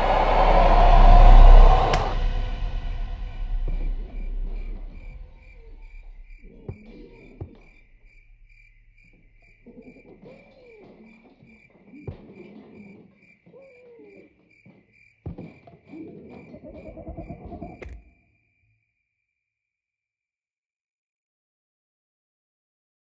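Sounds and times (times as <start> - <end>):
low wavering tones: 0.0 - 9.8
crickets chirping: 0.0 - 18.7.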